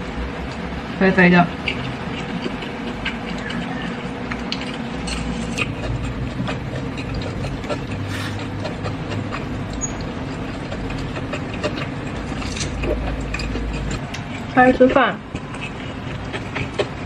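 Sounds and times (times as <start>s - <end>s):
steady low hum: 0.0s - 17.0s
person chewing: 1.6s - 14.6s, 15.3s - 17.0s.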